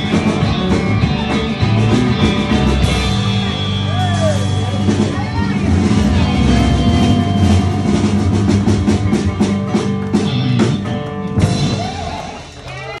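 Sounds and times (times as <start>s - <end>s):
drum hits: 0.0s - 12.4s
live country-rock band: 0.0s - 13.0s.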